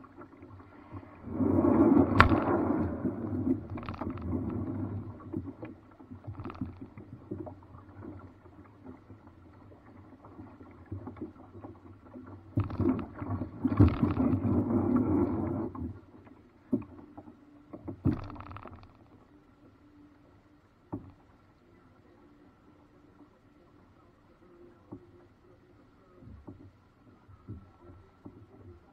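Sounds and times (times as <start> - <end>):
paddle splashes: 0.0 - 19.2
paddle knocking against hull: 0.9 - 16.0, 16.7 - 19.0.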